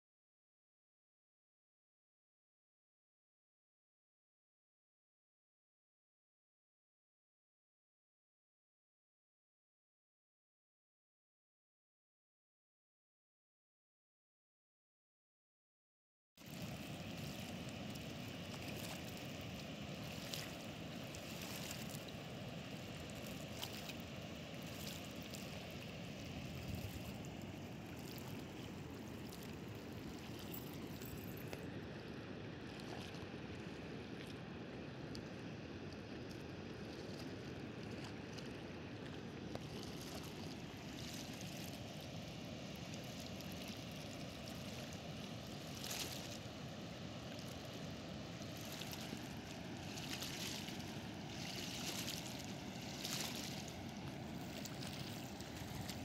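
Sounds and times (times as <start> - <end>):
water rushing from spillway: 16.4 - 56.0.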